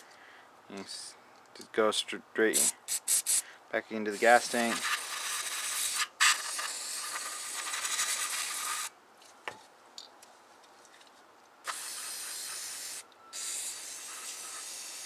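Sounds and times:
aerosol spray hissing: 2.6 - 3.4, 4.1 - 8.9, 11.7 - 15.0.

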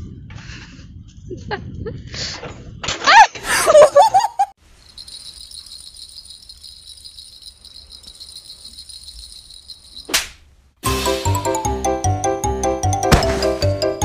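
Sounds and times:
small bells jingling: 4.6 - 10.2.

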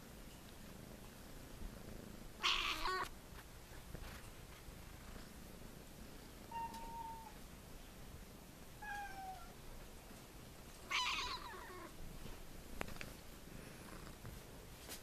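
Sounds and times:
kittens meowing: 2.4 - 3.1.

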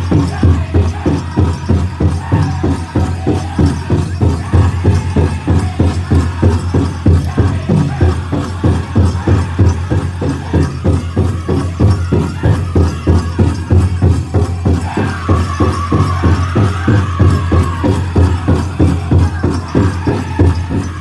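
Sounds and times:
big drum beating: 0.0 - 21.0
group singing: 0.0 - 21.0.

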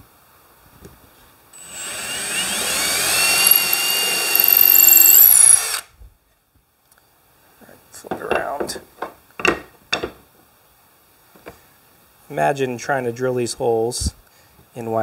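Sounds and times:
cordless drill whining: 1.6 - 5.9.

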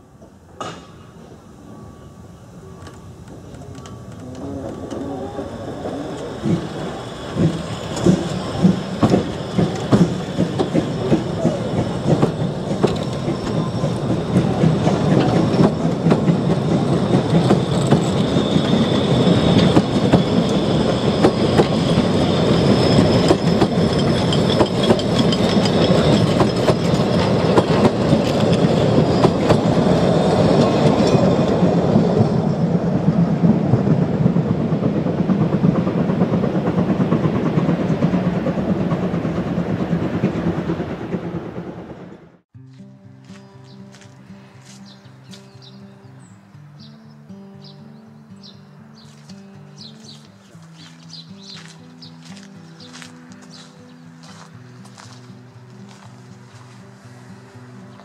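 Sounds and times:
train wheels clicking over rail joints: 2.8 - 32.5
wheel squeal: 3.5 - 32.7.

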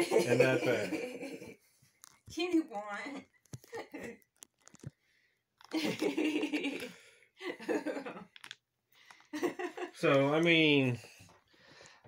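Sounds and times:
laughter: 0.0 - 1.6, 5.7 - 8.3, 9.3 - 10.0.

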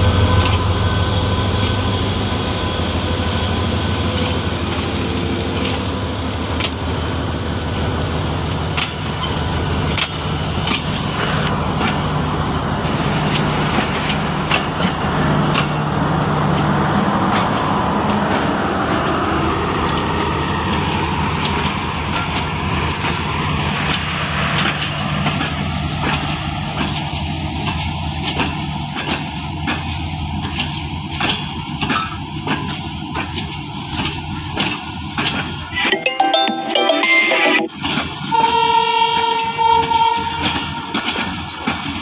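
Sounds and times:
train rumble: 0.0 - 35.8, 37.7 - 42.0
wheels clicking over rail joints: 8.7 - 12.2, 13.0 - 35.7, 38.0 - 42.0.

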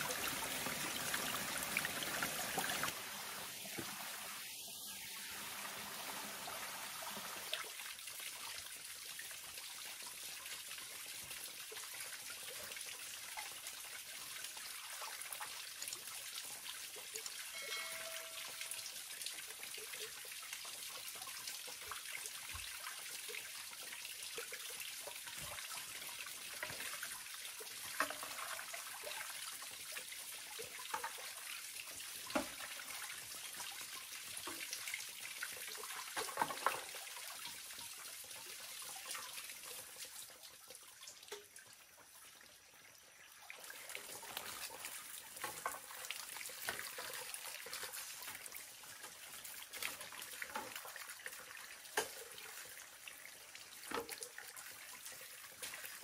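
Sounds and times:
water trickling and splashing: 0.0 - 56.0
brief high note: 17.6 - 18.8.

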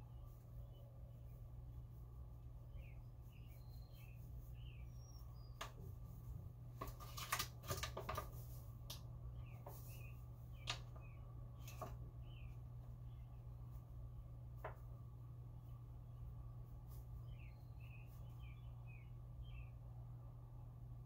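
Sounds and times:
low hum: 0.0 - 6.8, 8.3 - 21.0
faint high chirps: 2.7 - 5.8
paper bag rustling and crackling: 6.7 - 8.8.

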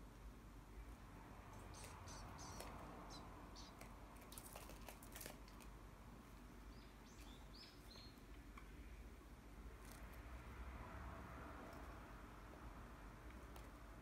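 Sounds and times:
fledglings chirping: 1.6 - 3.9, 6.7 - 8.2.

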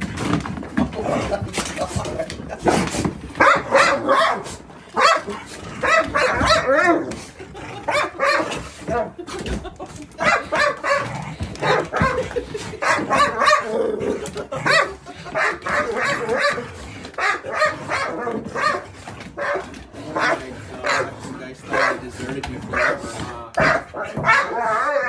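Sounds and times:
dogs barking and yelping: 2.4 - 21.1, 22.7 - 25.0.

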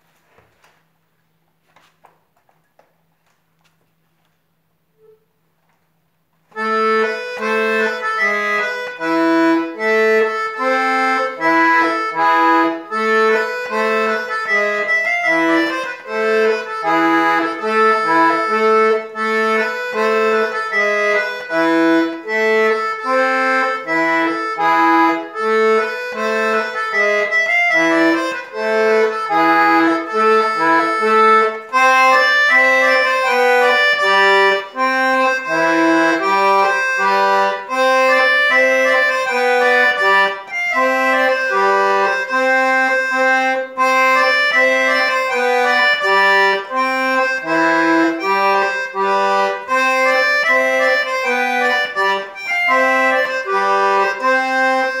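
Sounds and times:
accordion dance tune: 6.4 - 55.0.

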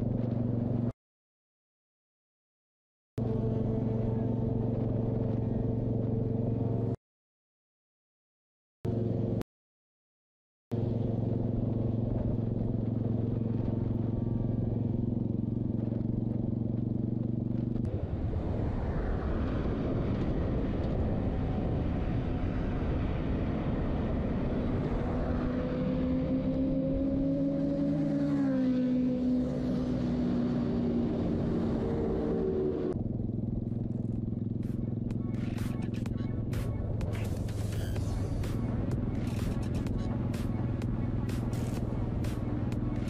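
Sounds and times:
motorcycle engine cruising: 10.8 - 18.2, 19.5 - 43.0
wind noise: 17.7 - 25.6.

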